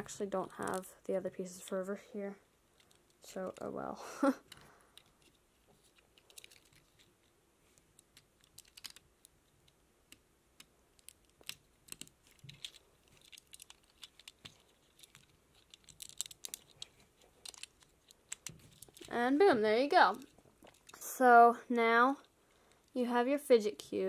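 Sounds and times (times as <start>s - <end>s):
plastic bricks clicking: 4.5s - 7.1s, 8.0s - 19.1s.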